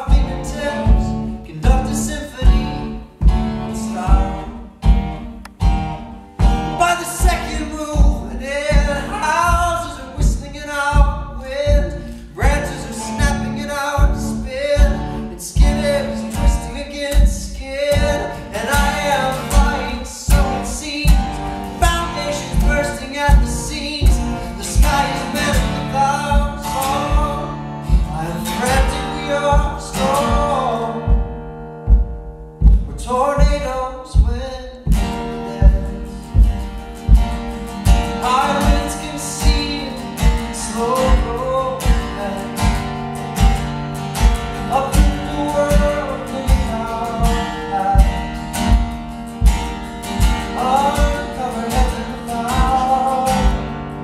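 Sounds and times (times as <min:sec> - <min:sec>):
man singing wordlessly: 0:00.0 - 0:05.6, 0:06.2 - 0:31.4, 0:32.7 - 0:54.0
acoustic guitar playing: 0:00.0 - 0:54.0
low steady beat: 0:00.0 - 0:54.0.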